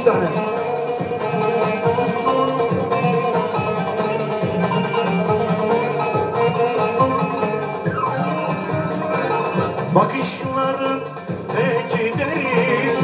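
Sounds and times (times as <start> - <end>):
live band playing folk-pop: 0.0 - 13.0.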